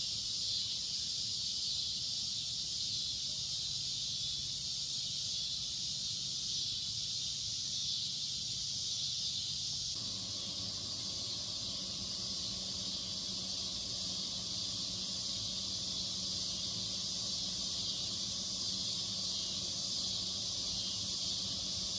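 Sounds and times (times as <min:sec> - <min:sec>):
crickets and night insects chirping: 0:00.0 - 0:21.9
low steady hum: 0:10.0 - 0:21.9.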